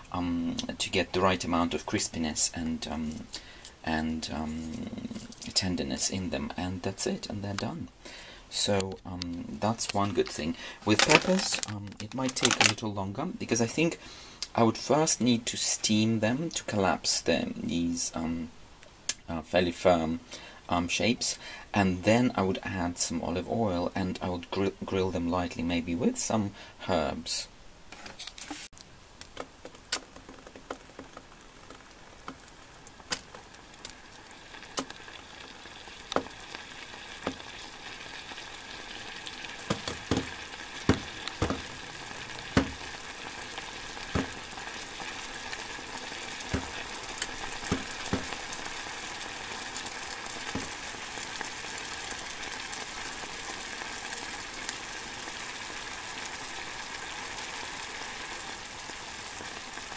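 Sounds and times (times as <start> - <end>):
sharp pops and crackles: 8.8 - 12.8, 27.9 - 54.8
water sizzling in a pan: 28.5 - 59.9.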